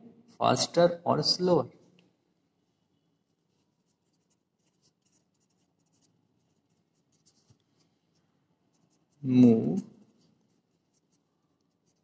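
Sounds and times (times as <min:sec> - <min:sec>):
pen scratching on paper: 0:03.3 - 0:07.8, 0:08.7 - 0:09.4, 0:10.1 - 0:12.0.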